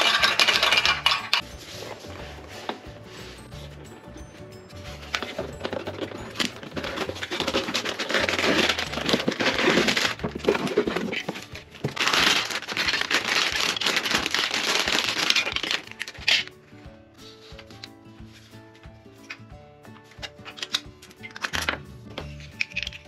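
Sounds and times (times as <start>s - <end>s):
plastic bags crinkling: 0.0s - 1.4s, 5.1s - 16.5s
plastic pieces clicking: 0.0s - 1.4s, 5.2s - 16.5s, 20.2s - 23.0s
cardboard box being opened: 5.1s - 15.8s.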